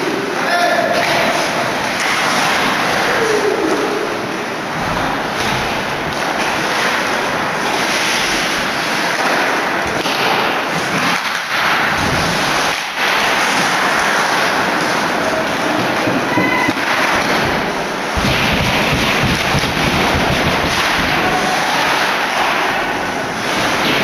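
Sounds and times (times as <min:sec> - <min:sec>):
crowd cheering and shouting: 0:20.8 - 0:23.2.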